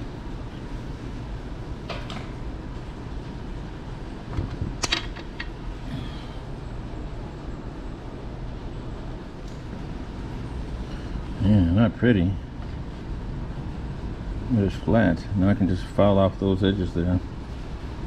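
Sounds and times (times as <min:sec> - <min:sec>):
low shop rumble: 0:00.0 - 0:18.0.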